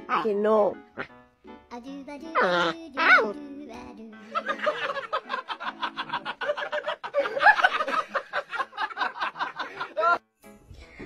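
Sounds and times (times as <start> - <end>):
person laughing: 4.3 - 10.2.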